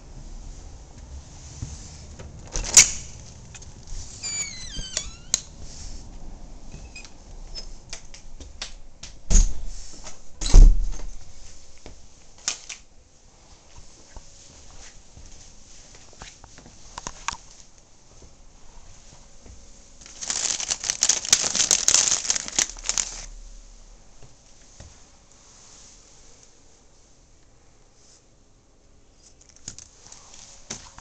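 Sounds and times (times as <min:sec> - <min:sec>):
short high squeaks: 0:04.1 - 0:05.5.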